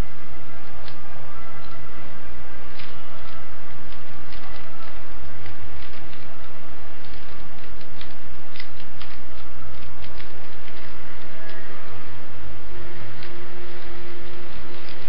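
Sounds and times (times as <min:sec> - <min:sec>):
puzzle cube clicking and rattling: 0:02.7 - 0:11.6, 0:13.0 - 0:15.0.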